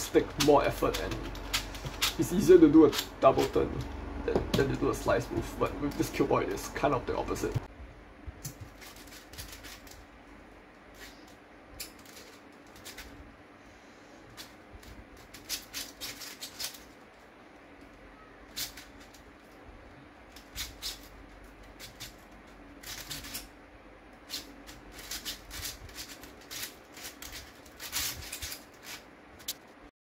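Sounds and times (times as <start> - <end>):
plastic puzzle clicking: 11.7 - 13.1, 14.4 - 17.0, 20.3 - 23.5, 24.3 - 29.6.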